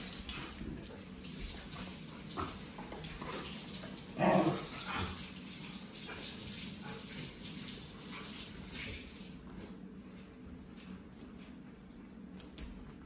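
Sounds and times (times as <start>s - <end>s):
dog growling: 4.2s - 5.2s.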